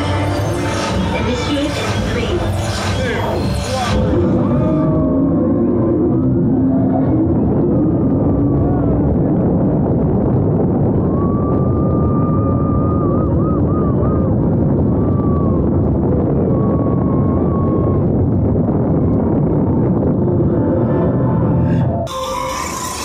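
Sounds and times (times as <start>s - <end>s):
wind rushing over microphone: 0.0s - 22.4s
roller coaster rumbling on track: 0.0s - 23.0s.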